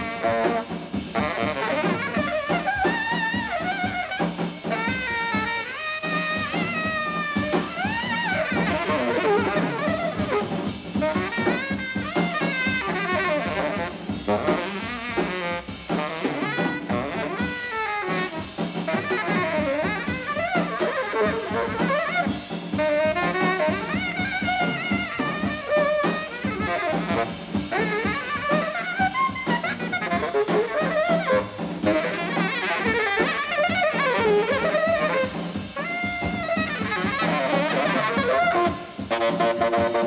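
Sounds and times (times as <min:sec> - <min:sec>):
drum kit cymbal and drum hits: 0:00.0 - 0:40.0
tenor saxophone solo: 0:00.0 - 0:40.0.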